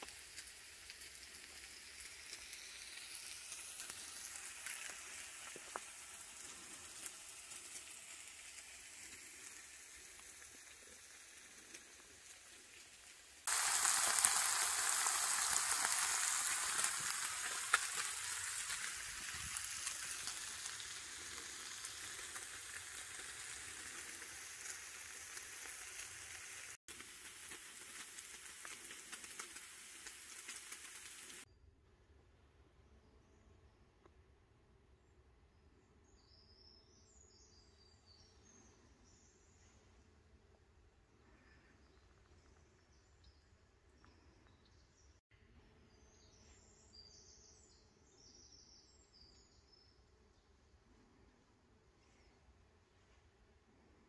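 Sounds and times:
food sizzling in a pan: 0.0 - 31.5.

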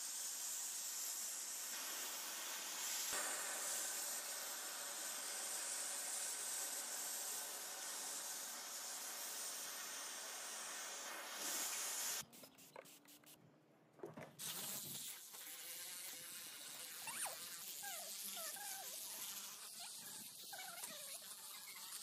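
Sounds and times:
vacuum cleaner running: 1.8 - 12.2.

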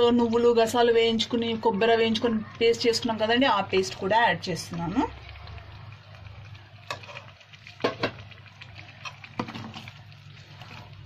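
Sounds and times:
spoon scraping a pot: 6.9 - 7.3.

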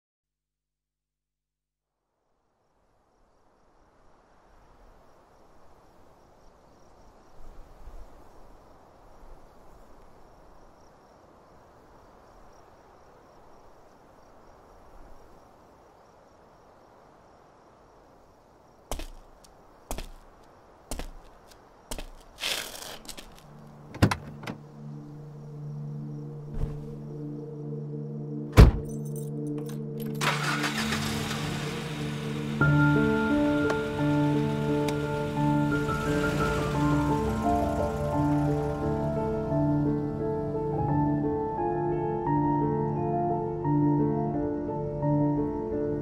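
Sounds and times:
faint hiss-like ambience: 1.9 - 23.9.

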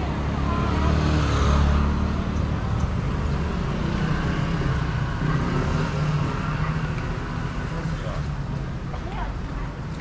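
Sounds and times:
street hum: 0.0 - 10.0
traffic engine rumble: 0.0 - 10.0.

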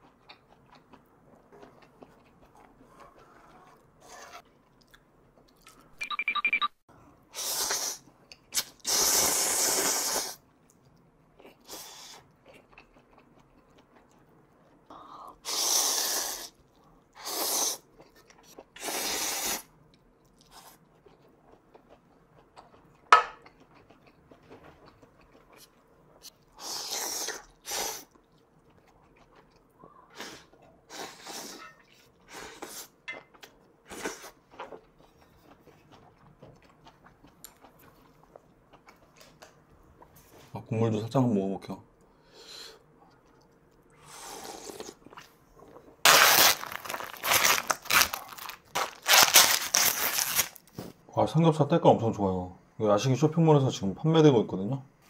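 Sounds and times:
chewing: 0.0 - 5.9, 10.6 - 15.2, 19.8 - 26.6, 27.3 - 40.2
person slurping noodles: 8.6 - 10.4, 15.4 - 16.6, 17.2 - 17.9, 18.8 - 19.7, 44.0 - 45.0.

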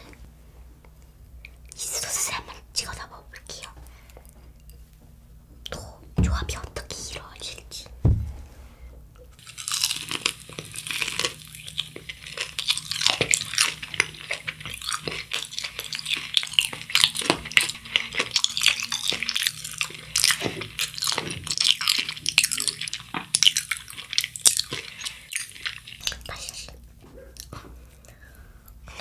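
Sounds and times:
crunchy chewing of fried food: 9.4 - 29.0.

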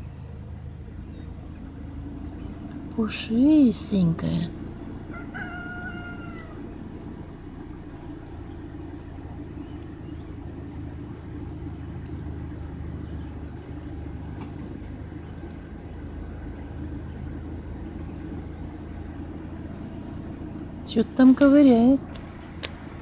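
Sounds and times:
vehicle engine rumbling: 0.0 - 23.0
animal call: 4.7 - 7.0.

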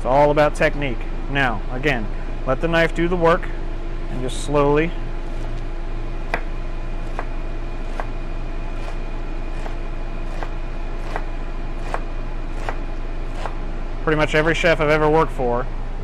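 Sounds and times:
background hum: 0.0 - 16.0
knife cutting onion on board: 6.3 - 13.6.

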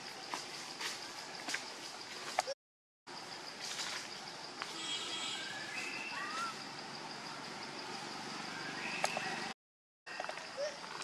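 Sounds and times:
short chirping calls: 5.1 - 6.8, 8.2 - 9.6.

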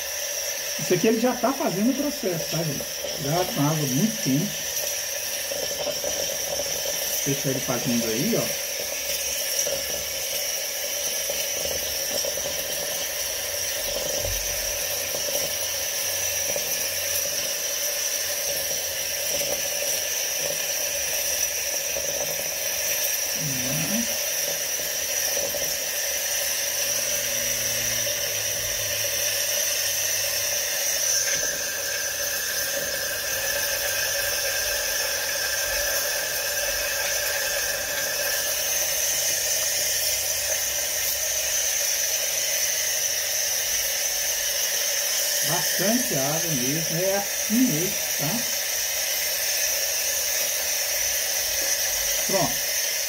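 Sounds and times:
steam wand hissing and whistling: 0.0 - 53.0.

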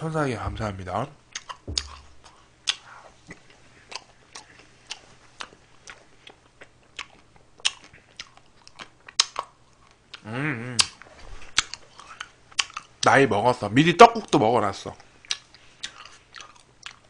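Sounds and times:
mouth chewing wet smacks: 1.3 - 13.0, 15.2 - 17.0.

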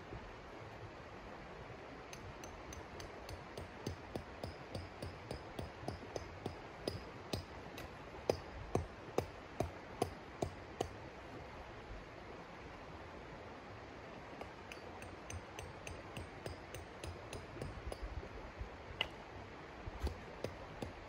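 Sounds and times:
hammer striking metal stake: 2.1 - 11.0, 14.4 - 18.1, 20.0 - 21.0.

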